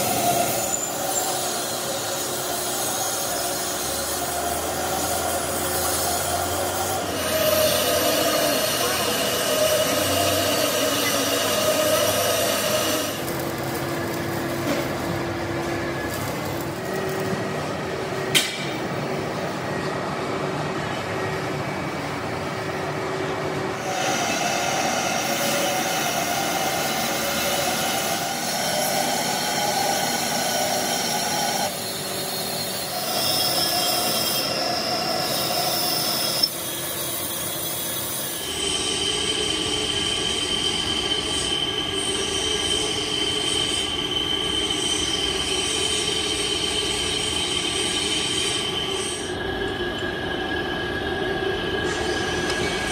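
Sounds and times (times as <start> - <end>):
lathe tool screeching on metal: 0.0 - 14.1, 23.8 - 50.0
machine running noise: 0.0 - 49.7.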